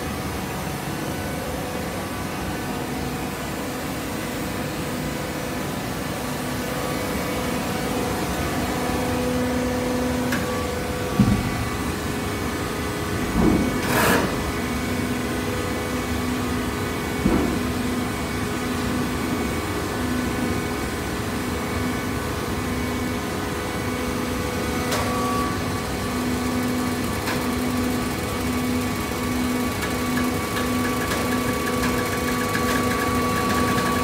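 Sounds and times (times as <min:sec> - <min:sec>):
baling machine humming: 0:24.9 - 0:34.0.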